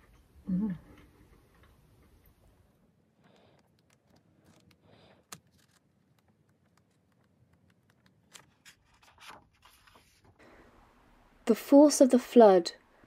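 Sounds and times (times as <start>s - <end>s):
faint clicks and taps: 3.2s - 9.4s.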